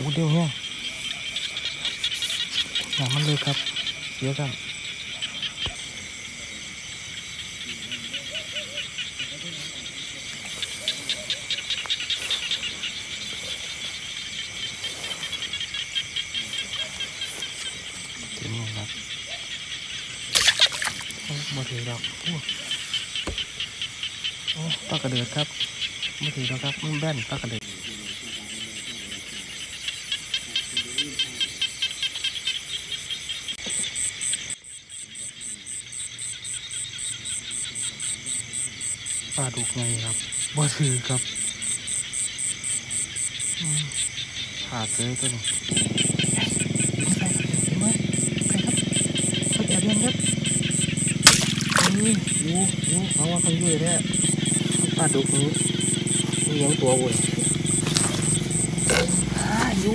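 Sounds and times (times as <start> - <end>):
frogs pulsing call: 0.0 - 59.9
insects trilling: 0.0 - 59.9.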